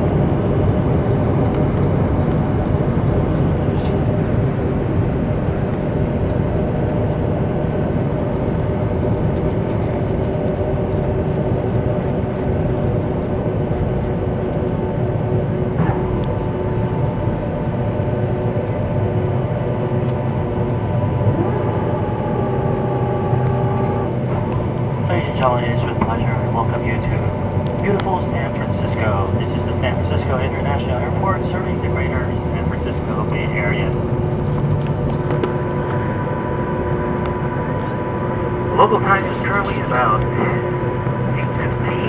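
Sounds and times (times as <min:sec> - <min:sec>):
engine and air rush: 0:00.0 - 0:42.0
low hum: 0:00.0 - 0:42.0
whining tones: 0:14.0 - 0:30.5, 0:33.8 - 0:42.0.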